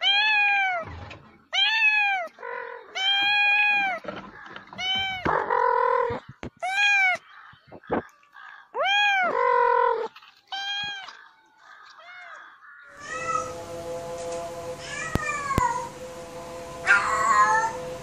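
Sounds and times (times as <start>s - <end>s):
cat meowing: 0.0s - 0.9s, 1.5s - 4.0s, 4.7s - 7.2s, 8.8s - 11.2s, 14.8s - 15.9s
steady hum: 13.0s - 18.0s.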